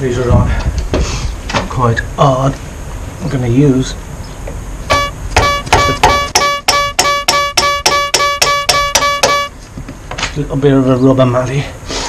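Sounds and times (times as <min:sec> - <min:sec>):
mallet striking ringing spanner: 0:04.9 - 0:09.5.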